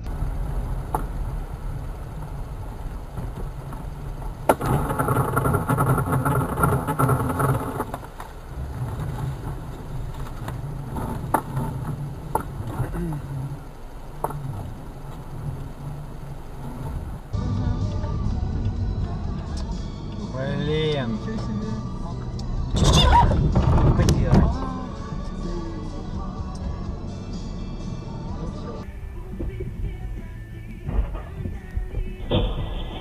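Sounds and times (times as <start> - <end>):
car engine and road rumble: 0.0 - 33.0.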